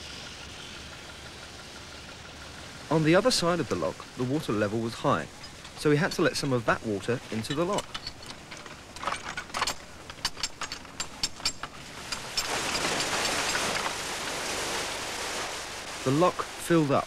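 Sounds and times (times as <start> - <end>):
water rushing into lock: 2.5 - 17.0.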